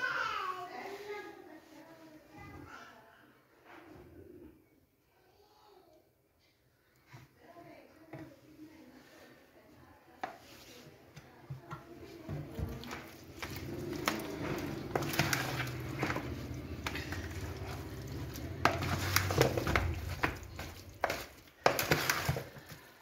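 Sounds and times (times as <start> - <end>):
wet squelches of mixing by hand: 6.8 - 23.0.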